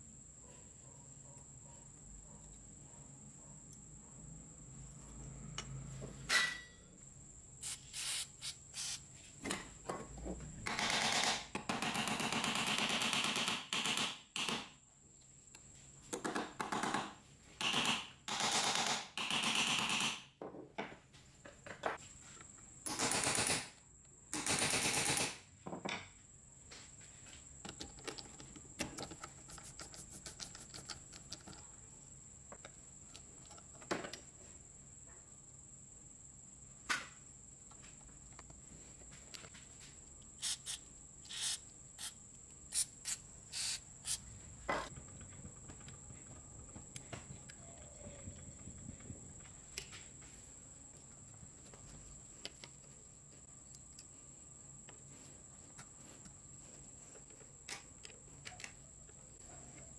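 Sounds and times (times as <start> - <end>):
aerosol spray can hissing: 7.6 - 9.1, 40.4 - 44.3.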